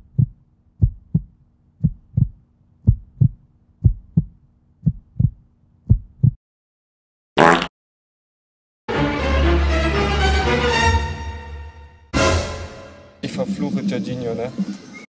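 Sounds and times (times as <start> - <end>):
heartbeat thumps: 0.0 - 6.4.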